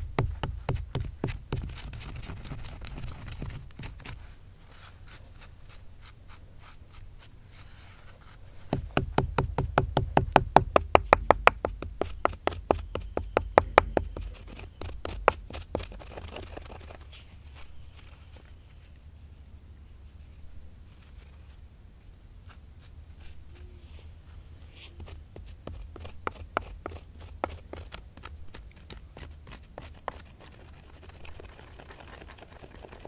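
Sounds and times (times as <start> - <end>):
stone pestle pounding in mortar: 8.7 - 14.3.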